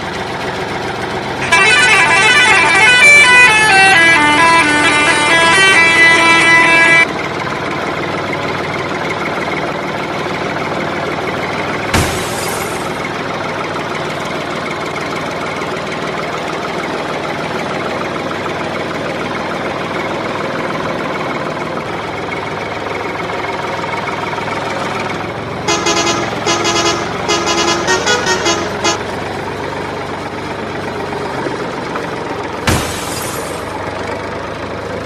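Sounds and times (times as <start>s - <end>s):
engine running: 0.0s - 35.0s
vehicle horn short blasts: 25.7s - 29.1s.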